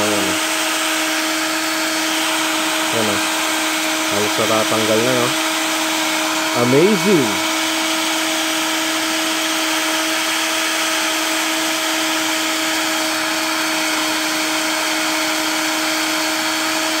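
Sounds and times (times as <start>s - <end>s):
hair dryer running: 0.0s - 17.0s.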